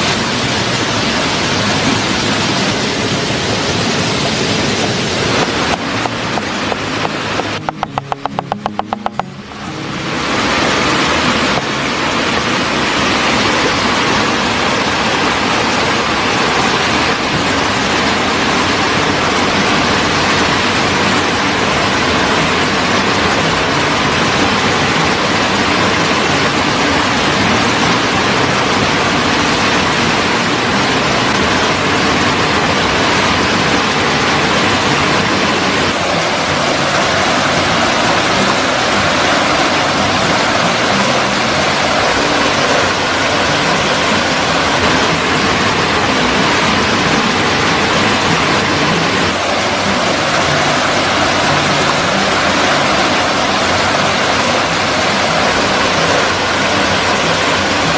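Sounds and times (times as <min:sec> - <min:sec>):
loud rushing noise: 0:00.0 - 0:57.9.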